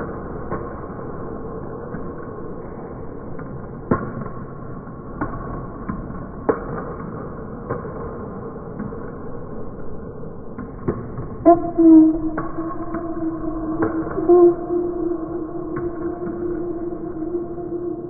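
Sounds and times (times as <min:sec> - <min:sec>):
low hum: 0:08.8 - 0:18.0.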